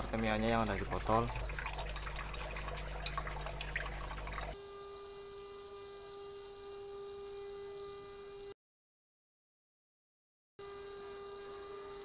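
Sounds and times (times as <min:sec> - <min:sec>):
water trickling and dripping: 0:00.0 - 0:04.6.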